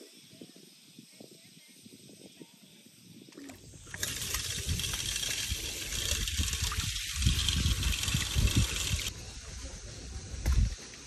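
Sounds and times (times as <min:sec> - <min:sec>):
water splashing into stone basin: 0:03.4 - 0:09.1
water spraying onto feet: 0:03.8 - 0:09.1.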